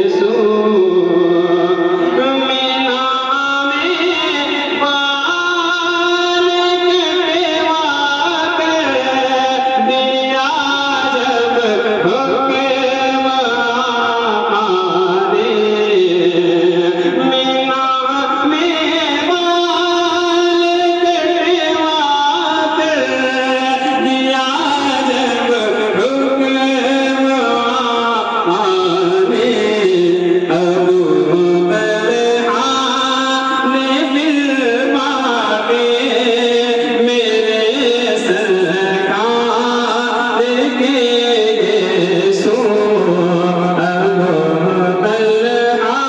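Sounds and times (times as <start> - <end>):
man singing into a microphone: 0.0 - 46.0.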